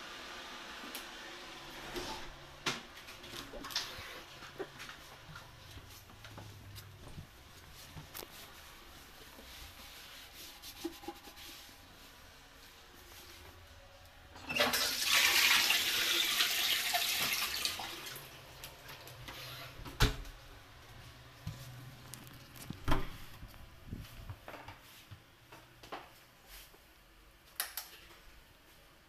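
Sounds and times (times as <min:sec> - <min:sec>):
toilet flushing: 0:14.3 - 0:19.4.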